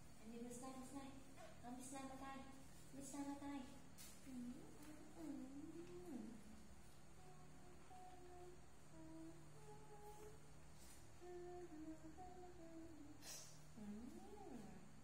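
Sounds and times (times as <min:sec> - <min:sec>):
woman humming softly: 0:04.2 - 0:10.5, 0:11.2 - 0:15.0.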